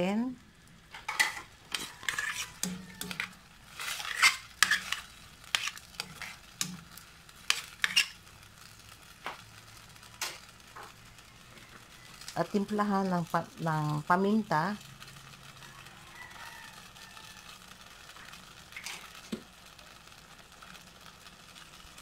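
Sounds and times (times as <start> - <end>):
metal spatula scraping a pan: 0.9 - 8.4, 10.1 - 11.0, 18.8 - 19.3.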